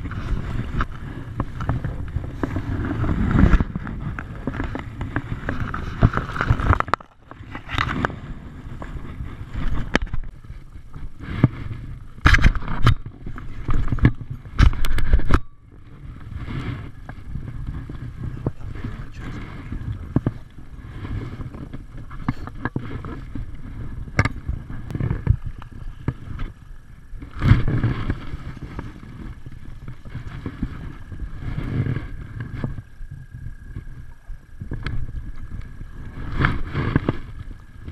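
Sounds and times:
clothing rubbing on camera: 0:00.0 - 0:15.3
wind rumble on microphone: 0:00.0 - 0:37.9.

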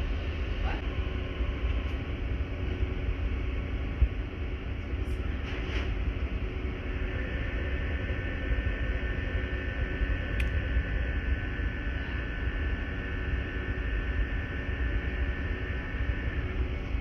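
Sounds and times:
machine hum and whir: 0:00.0 - 0:17.0
thin motor whine: 0:06.0 - 0:17.0.

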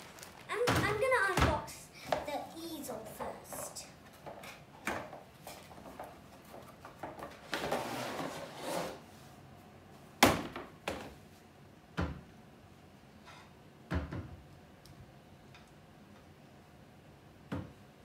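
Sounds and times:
wood scraping out of cardboard box: 0:07.4 - 0:09.0.

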